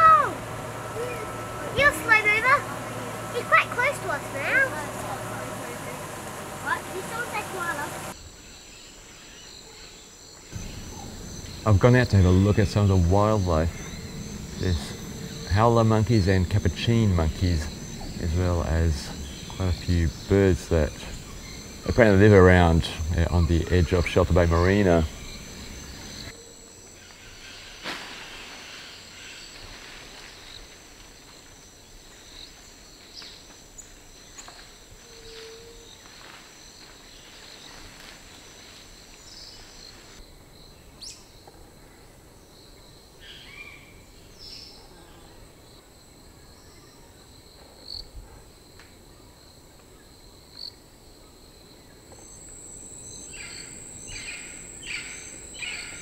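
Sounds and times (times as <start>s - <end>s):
insects shrilling: 0.0s - 40.2s, 51.4s - 56.0s
quick chirps: 52.2s - 56.0s.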